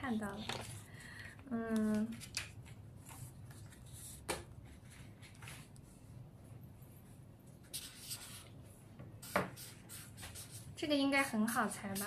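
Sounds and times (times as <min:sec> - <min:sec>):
marker pen scratching on paper: 0:07.6 - 0:08.6, 0:09.2 - 0:12.0
pen tap: 0:09.2 - 0:09.6.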